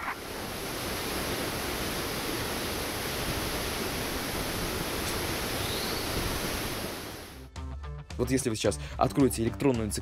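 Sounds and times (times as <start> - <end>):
waterfall crashing onto rocks: 0.2 - 7.4.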